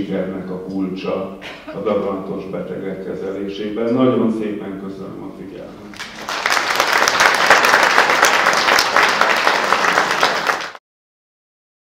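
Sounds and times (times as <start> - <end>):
audience applauding: 6.0 - 10.8.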